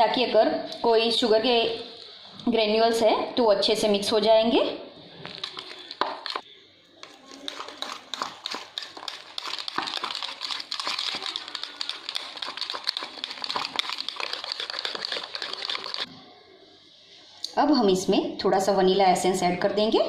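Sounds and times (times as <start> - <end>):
whisk clicking and scraping bowl: 5.3 - 6.4, 7.0 - 16.1.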